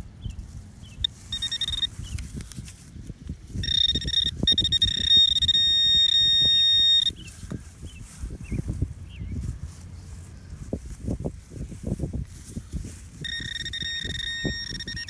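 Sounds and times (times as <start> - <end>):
soil and grass scraping: 0.0 - 15.0
high-pitched electronic tone: 1.0 - 2.0, 3.6 - 7.2, 13.2 - 15.0.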